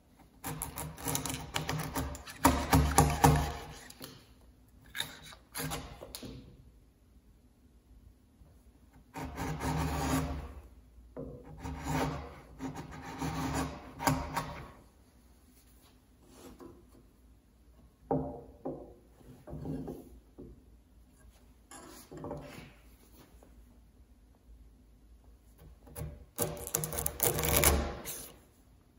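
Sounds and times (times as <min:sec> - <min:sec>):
chisel scraping along wood: 0:00.4 - 0:04.1, 0:04.9 - 0:06.2, 0:09.0 - 0:10.7, 0:11.3 - 0:14.8, 0:26.0 - 0:28.4.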